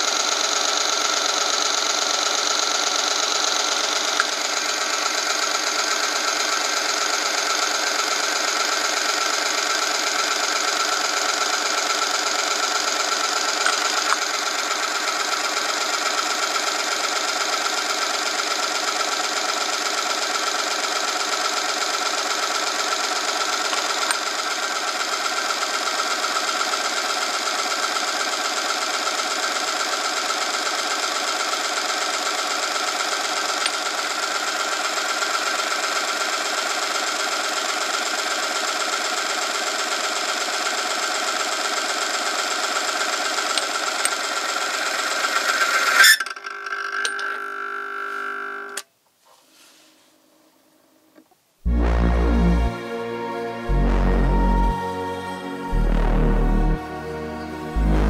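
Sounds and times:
electric motor whine and rubbing: 44.5 - 46.3.

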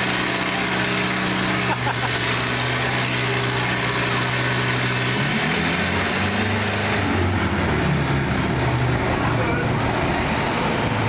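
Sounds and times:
tractor engine under load: 0.0 - 11.0.

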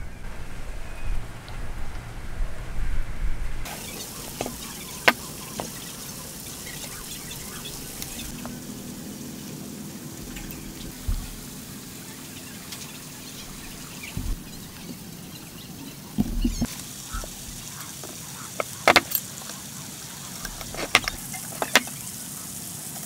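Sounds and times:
steady background hiss: 0.0 - 23.0
soft knocks on timber: 14.1 - 15.0
steel square tapping timber: 16.2 - 19.2.

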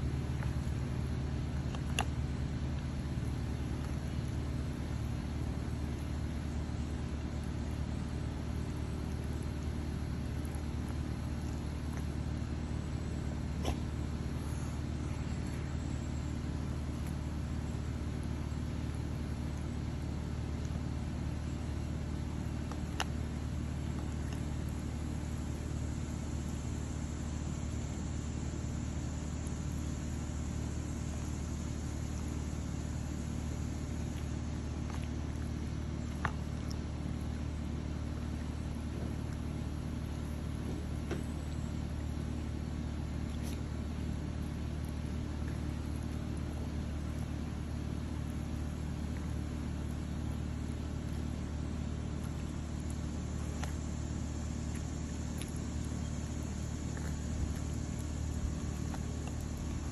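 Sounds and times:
low mechanical hum: 0.0 - 59.9.

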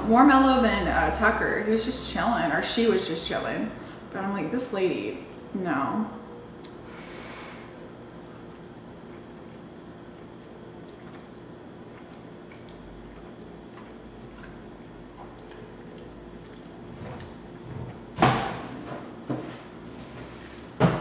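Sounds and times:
faint steady hum: 0.0 - 21.0
wet chewing: 7.7 - 17.7.

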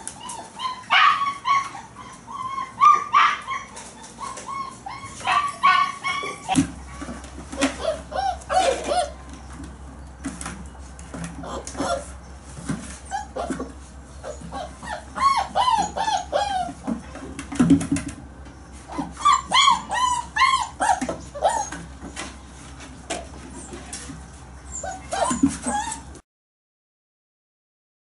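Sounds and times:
puppies whining and yipping: 0.0 - 17.6, 18.4 - 26.2.

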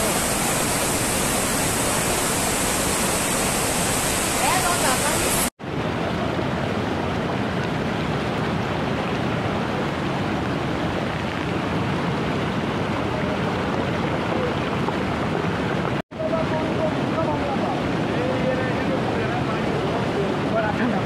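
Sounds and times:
river rushing: 0.0 - 21.0.

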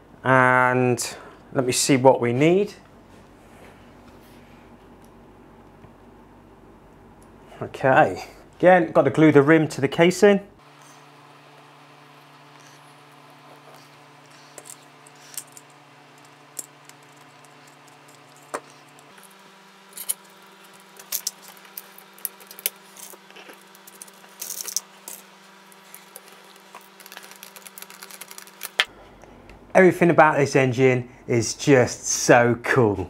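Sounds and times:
low hum: 10.5 - 29.8.

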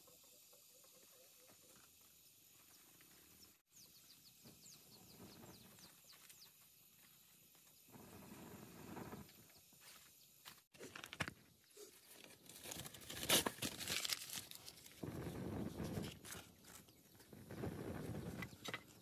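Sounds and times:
bird chirping: 2.6 - 7.1.

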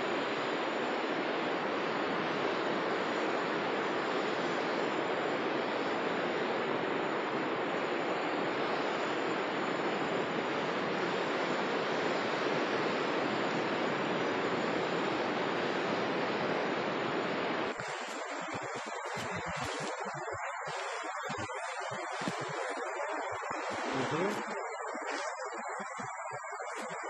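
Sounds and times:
sea surf breaking on shore: 0.5 - 27.0.

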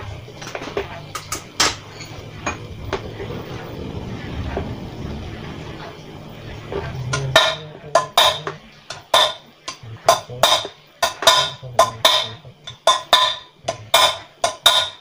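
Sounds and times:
hammer striking steel: 7.1 - 15.0.

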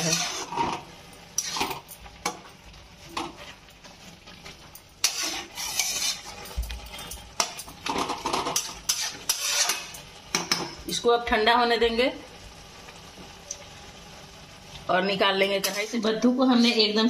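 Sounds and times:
metal spatula scraping a pan: 0.0 - 1.9, 5.0 - 10.6, 15.5 - 17.0
light sizzle: 0.0 - 17.0.

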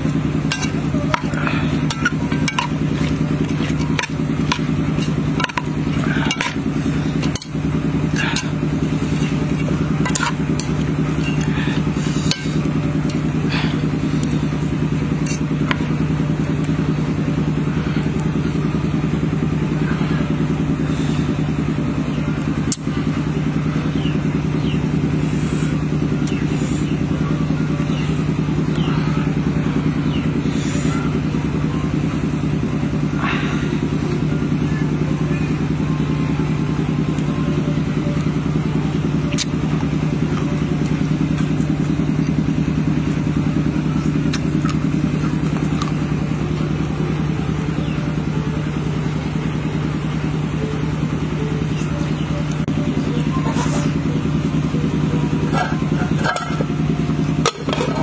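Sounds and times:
low motor drone: 0.0 - 58.0
utensils clattering in metal bowl: 0.4 - 11.5.

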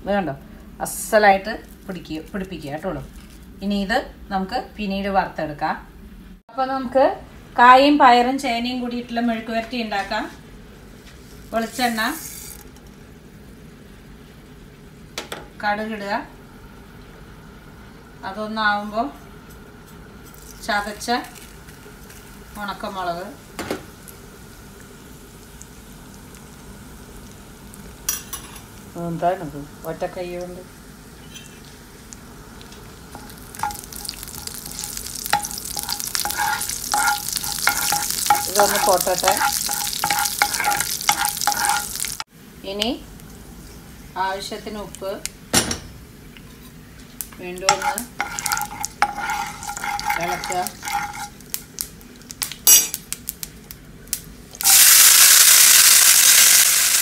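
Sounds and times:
spices sizzling in hot oil: 9.4 - 57.0
metal spoon clinking against pan: 33.2 - 42.0, 47.7 - 51.4, 52.7 - 53.0.

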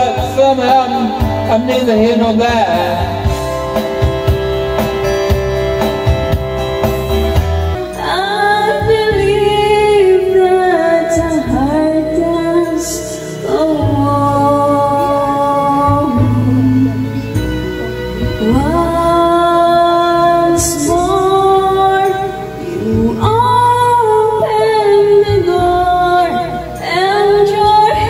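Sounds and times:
backing music: 0.0 - 28.0
woman singing: 7.9 - 17.4, 18.2 - 28.0.

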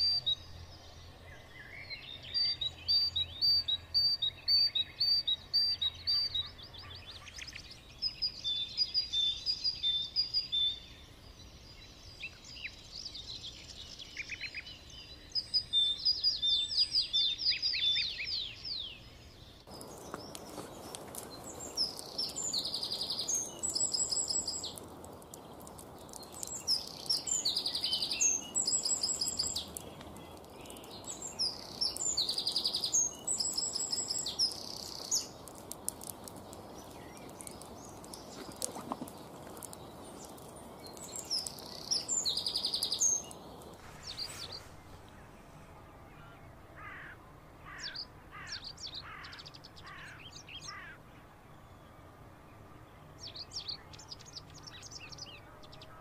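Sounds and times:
songbirds chirping: 0.0 - 56.0
steady hiss: 19.6 - 45.8.

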